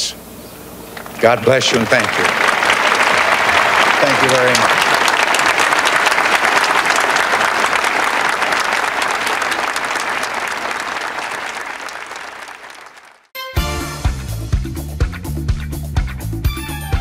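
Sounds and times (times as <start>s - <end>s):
crowd applauding: 1.2s - 13.3s
music with a beat: 13.4s - 17.0s.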